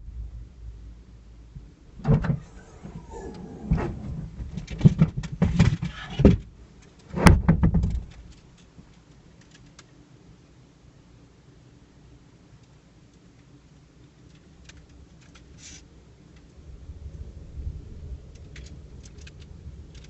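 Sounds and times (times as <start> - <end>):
sharp clunks and knocks: 1.6 - 6.5, 7.1 - 8.3.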